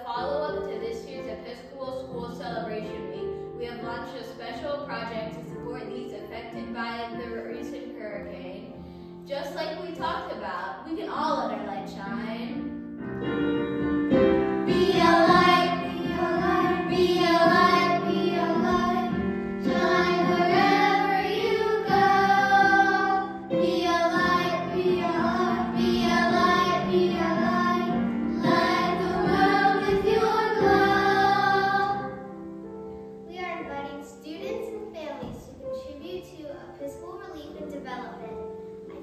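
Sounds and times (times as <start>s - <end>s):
musical accompaniment: 11.6s - 39.0s
children singing: 14.6s - 32.3s.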